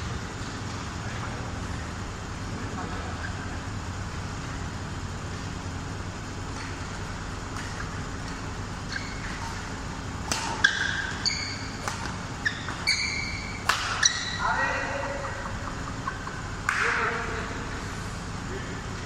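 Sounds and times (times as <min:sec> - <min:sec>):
steady low hum: 0:00.0 - 0:19.0
shoes squeaking on court: 0:06.4 - 0:14.7
rackets hitting shuttlecock: 0:06.4 - 0:17.4.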